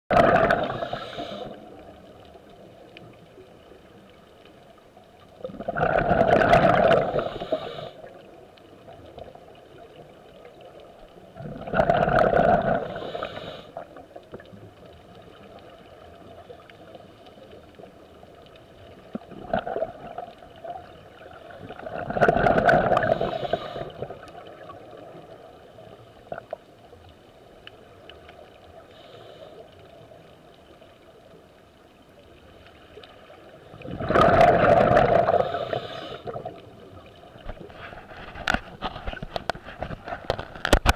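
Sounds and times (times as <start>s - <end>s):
exhaled breath bubbling underwater: 0.1s - 1.9s, 5.4s - 8.3s, 11.4s - 14.0s, 21.2s - 25.1s, 33.7s - 36.7s
underwater hiss: 0.2s - 2.2s, 5.8s - 8.4s, 11.5s - 14.1s, 21.2s - 26.2s, 28.6s - 30.2s, 32.6s - 37.1s
faint ticks: 0.7s - 5.4s, 12.8s - 21.5s, 22.5s - 33.8s.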